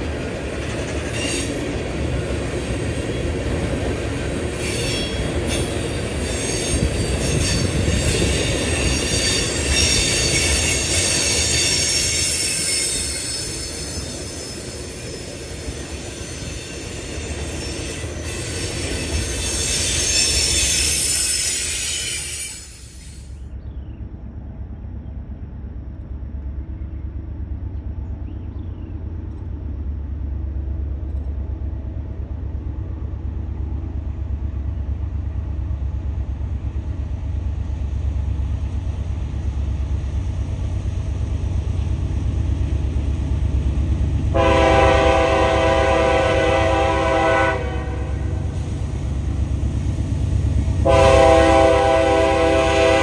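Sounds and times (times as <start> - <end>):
diesel locomotive rumble: 0.0 - 53.0
train air horn blasts: 44.3 - 48.6, 50.8 - 53.0.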